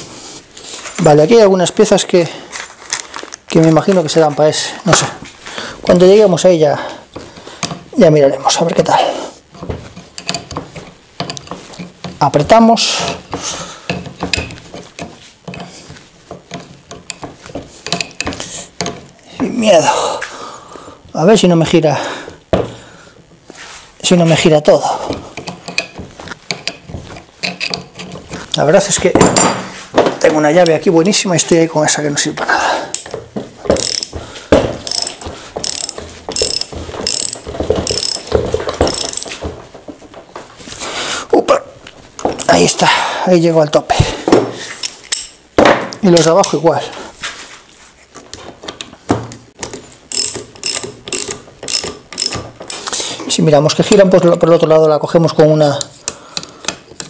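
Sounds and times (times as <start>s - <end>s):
wrench clicking on metal nut: 10.2s - 10.6s, 17.8s - 18.9s, 25.4s - 26.8s, 33.7s - 34.1s, 34.8s - 39.3s, 44.8s - 45.4s, 50.1s - 52.8s.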